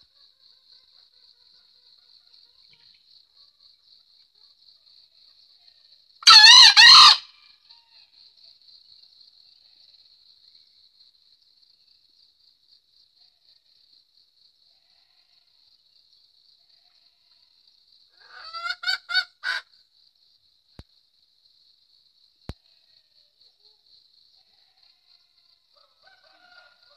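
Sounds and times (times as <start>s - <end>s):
cricket trilling: 0.0s - 26.9s
rooster crowing: 6.2s - 7.5s, 25.8s - 26.9s.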